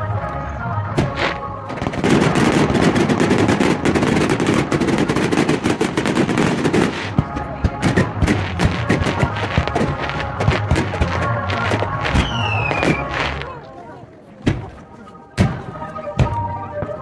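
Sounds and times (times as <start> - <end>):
fireworks bursting: 0.9 - 13.6.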